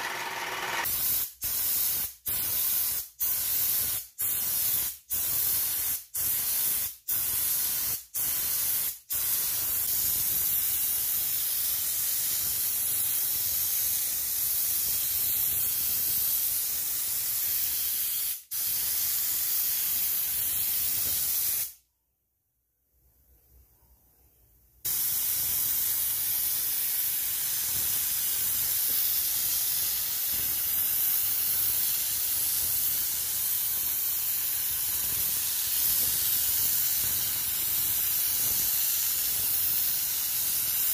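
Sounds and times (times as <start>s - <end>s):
spray gun hissing: 24.9s - 40.9s.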